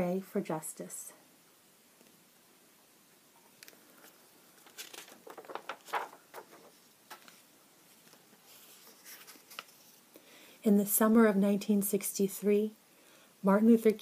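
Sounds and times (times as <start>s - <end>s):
book pages rustling: 3.5s - 10.1s.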